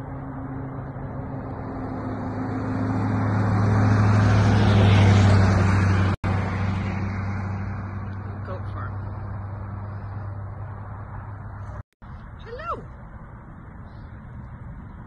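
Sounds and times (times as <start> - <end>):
vehicle passing on road: 0.0 - 15.0.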